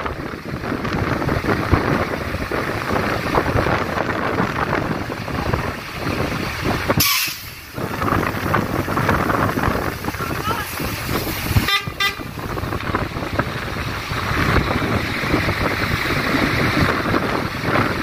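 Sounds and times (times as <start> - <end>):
trucks idling: 0.0 - 18.0
wind buffeting microphone: 0.0 - 18.0
short hiss: 7.0 - 7.6.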